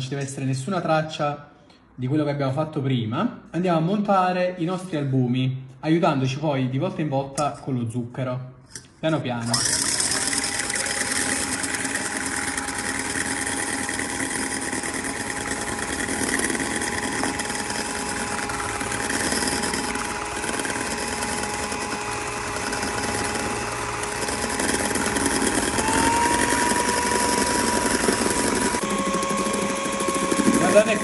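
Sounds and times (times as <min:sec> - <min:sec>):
electric hand mixer whipping: 0:09.4 - 0:31.0.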